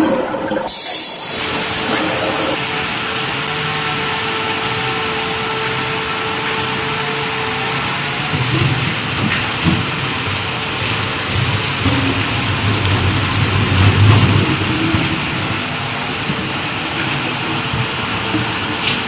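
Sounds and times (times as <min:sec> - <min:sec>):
high hiss: 0:00.0 - 0:08.2
low machinery rumble: 0:00.0 - 0:19.0
machinery hum with whine: 0:00.0 - 0:19.0.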